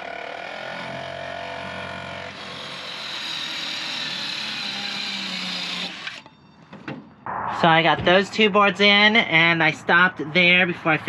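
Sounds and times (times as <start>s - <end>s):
electric power saw running: 0.0s - 6.3s.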